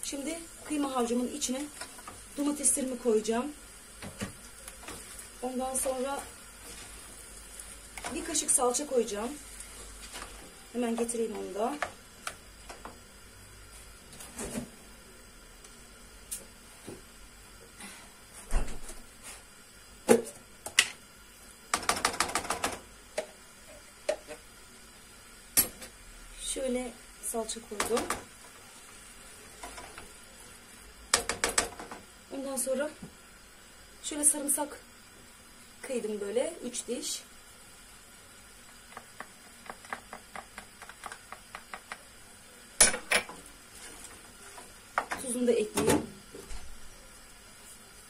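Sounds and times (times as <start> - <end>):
spoon stirring in a pot: 38.6 - 42.2.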